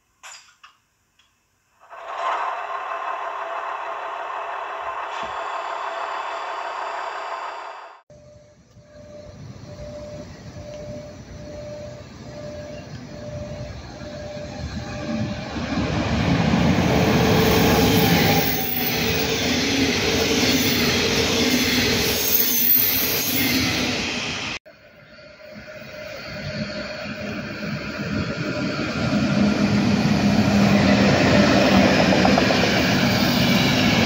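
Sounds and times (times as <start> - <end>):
electric locomotive hum: 1.8 - 34.0
train wheels rumbling on rail: 25.6 - 34.0.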